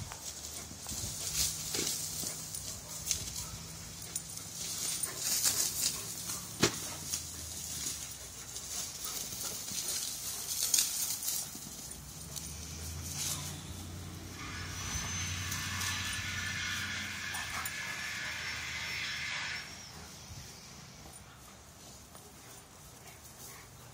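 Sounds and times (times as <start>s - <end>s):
dogs scuffling in grass: 0.0s - 23.9s.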